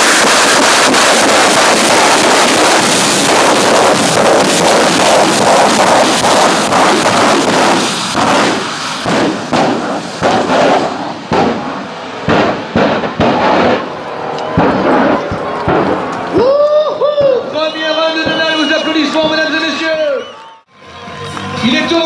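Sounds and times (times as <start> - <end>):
sharp exhaust bangs: 0.0 - 16.4
drag car engine roaring: 0.0 - 16.7.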